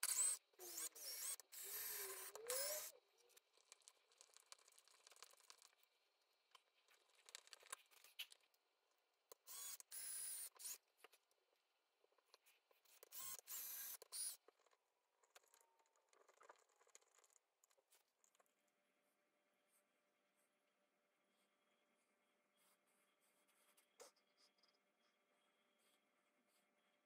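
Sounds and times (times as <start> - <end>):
cordless drill motor whining: 0.0 - 3.0, 9.5 - 10.8, 13.1 - 14.4.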